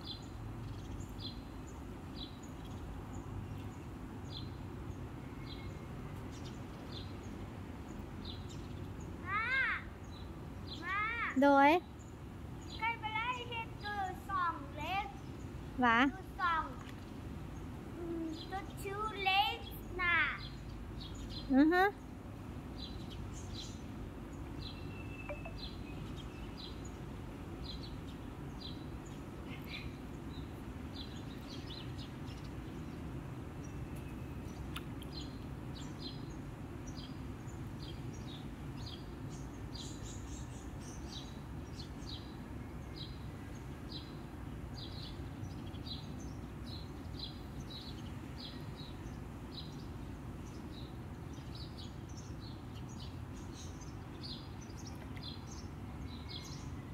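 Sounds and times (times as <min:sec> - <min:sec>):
small bird chirping: 0:22.8 - 0:27.0.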